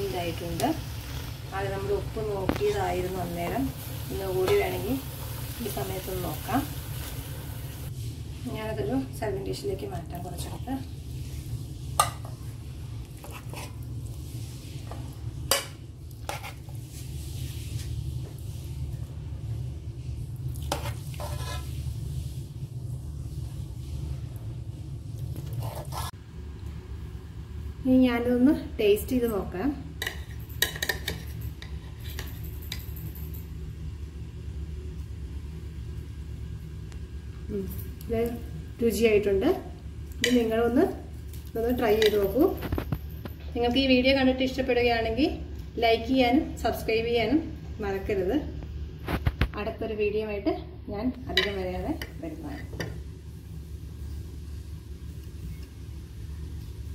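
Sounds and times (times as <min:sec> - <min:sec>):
spoon scraping curry in pan: 0:13.0 - 0:13.8, 0:14.8 - 0:16.8, 0:20.6 - 0:21.8, 0:25.4 - 0:26.2.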